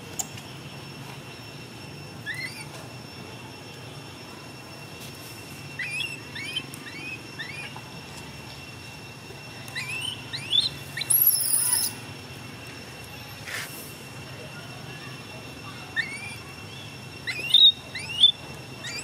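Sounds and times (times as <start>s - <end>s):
animal chirping calls: 2.2s - 2.7s, 5.7s - 7.7s, 9.8s - 12.0s, 15.9s - 19.0s
shrill animal squeal: 2.2s - 2.7s, 5.8s - 7.7s, 9.8s - 11.9s, 15.9s - 16.5s, 17.2s - 19.0s.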